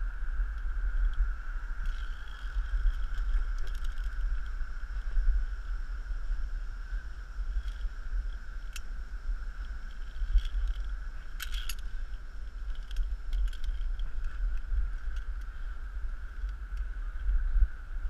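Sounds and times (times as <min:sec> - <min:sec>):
low microphone rumble: 0:00.0 - 0:18.0
metal carabiners clinking: 0:01.8 - 0:04.5, 0:09.9 - 0:15.5.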